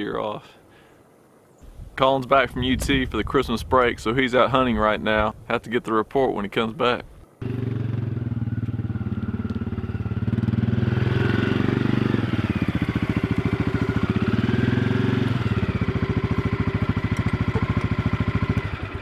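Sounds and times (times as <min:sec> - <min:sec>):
atv engine running: 0:07.4 - 0:19.0.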